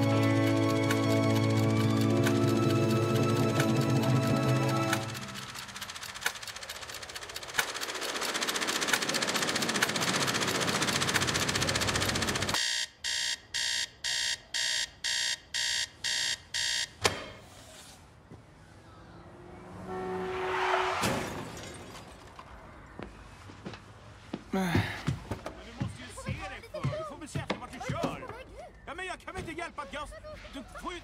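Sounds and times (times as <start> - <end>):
clock cards flapping: 0.0 - 12.6
alarm beeps: 12.6 - 17.0.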